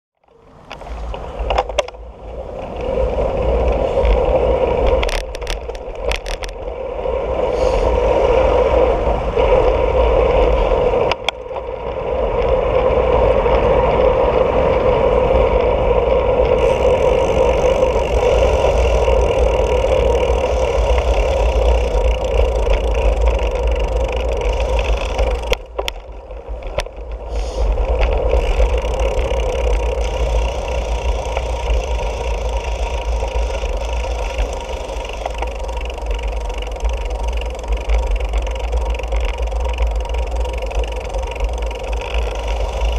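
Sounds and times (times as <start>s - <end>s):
bicycle rattling: 0.2s - 42.9s
wind buffeting microphone: 0.5s - 42.9s
tyre hum: 12.4s - 42.9s.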